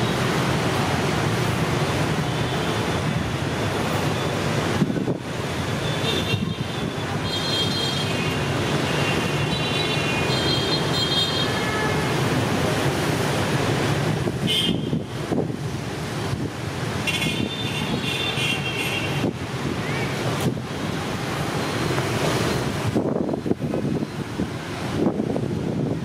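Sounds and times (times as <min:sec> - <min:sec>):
road traffic rumble: 0:00.0 - 0:26.0
wind buffeting microphone: 0:22.6 - 0:26.0.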